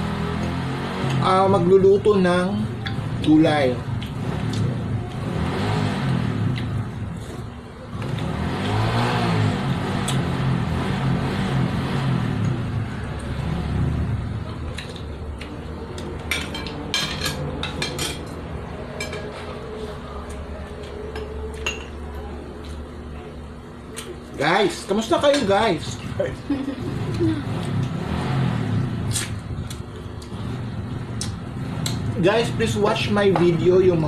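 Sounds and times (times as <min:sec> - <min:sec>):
cutlery and dishes clinking: 0:16.0 - 0:18.4
low pitched drone: 0:26.3 - 0:34.0.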